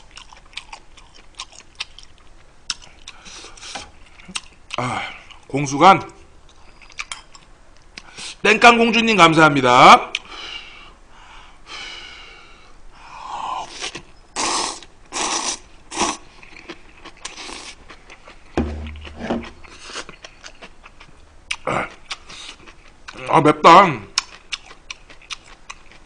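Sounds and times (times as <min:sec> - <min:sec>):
breathing and eating sounds: 0:02.7 - 0:05.5, 0:08.0 - 0:08.4, 0:10.2 - 0:23.2
man slurping noodles: 0:13.8 - 0:16.2
dull low bump: 0:18.6 - 0:19.6.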